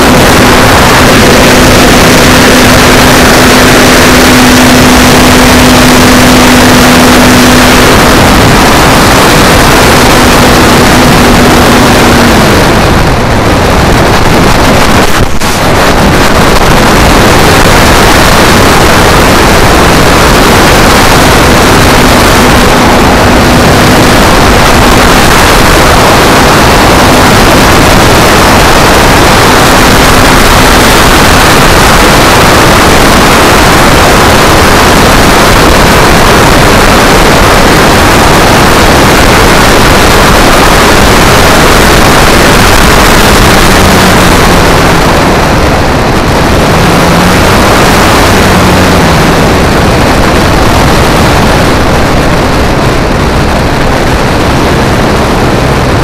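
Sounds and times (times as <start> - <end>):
faint engine tone: 0.0 - 35.6
wind and propeller rush: 0.0 - 56.0.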